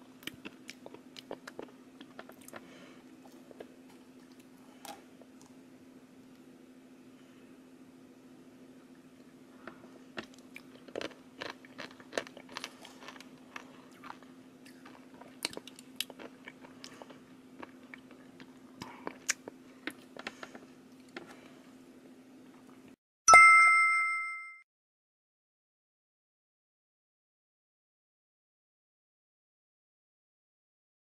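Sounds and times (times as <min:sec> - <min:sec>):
faint low hum: 0:00.0 - 0:23.0
bright chime: 0:23.3 - 0:24.6.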